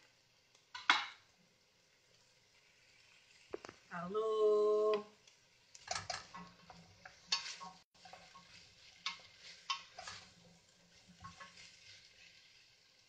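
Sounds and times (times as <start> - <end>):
faint sizzle: 0.0 - 13.0
wooden spoon scraping pan: 5.8 - 12.9.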